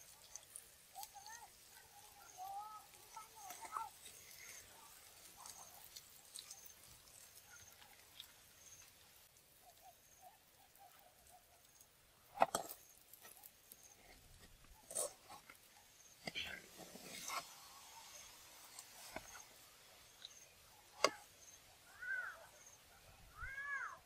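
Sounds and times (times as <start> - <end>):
metal ladle scraping a wok: 16.2 - 19.4.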